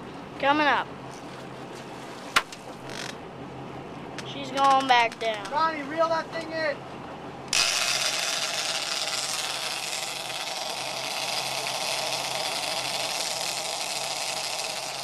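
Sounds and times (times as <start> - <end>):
fishing reel drag buzzing: 7.5 - 15.0.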